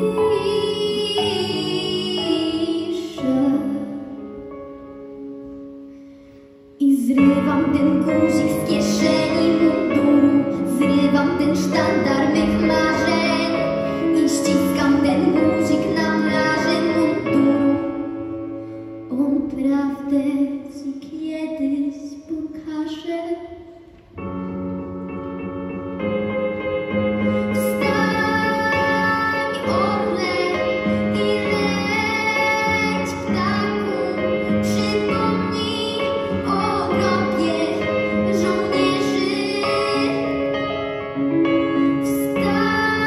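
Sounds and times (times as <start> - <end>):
girl singing into a microphone: 0.0 - 4.3, 6.8 - 24.0, 27.5 - 40.6, 41.8 - 43.0
instrumental accompaniment: 23.8 - 43.0.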